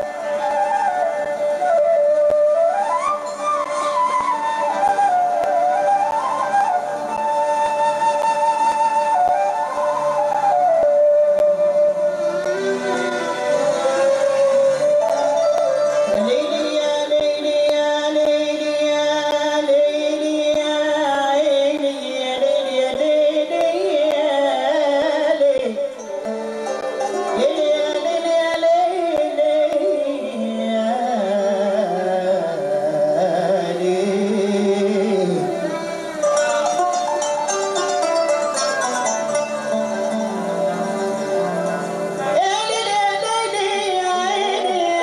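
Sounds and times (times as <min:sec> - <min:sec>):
accompanying instruments: 0:00.0 - 0:45.0
person singing ornamented melody: 0:12.0 - 0:45.0.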